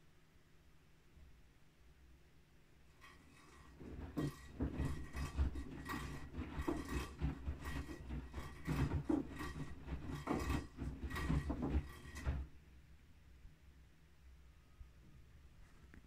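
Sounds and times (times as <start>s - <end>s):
washing machine drum turning: 3.0s - 12.5s.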